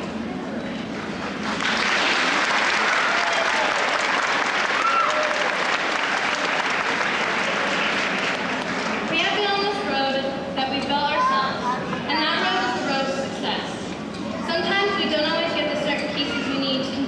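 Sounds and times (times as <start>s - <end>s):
audience applauding: 1.2s - 9.1s.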